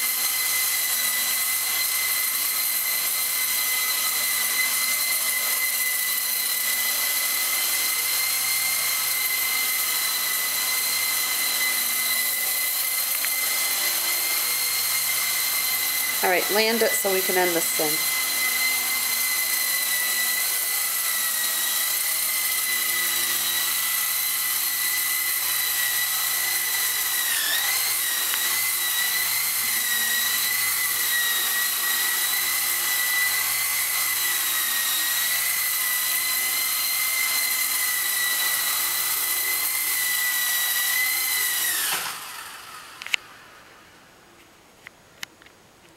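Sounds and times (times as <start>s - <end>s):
rc helicopter rotor whine: 0.0s - 44.4s.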